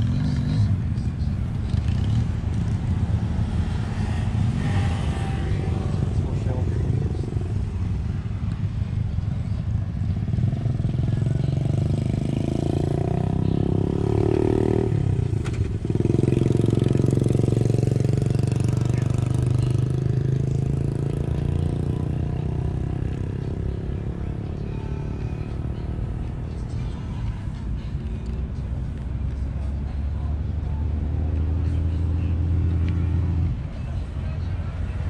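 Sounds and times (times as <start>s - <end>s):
motorcycle engine running: 0.0s - 35.0s.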